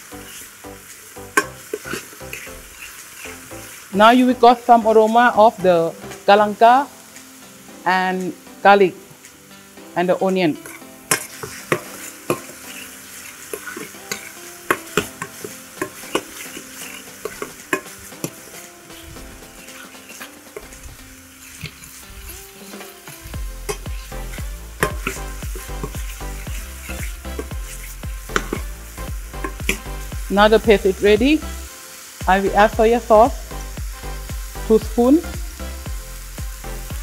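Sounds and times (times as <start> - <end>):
paste sizzling in hot oil: 0.0 - 37.0
spoon scraping a pan: 1.4 - 3.9, 10.5 - 30.2.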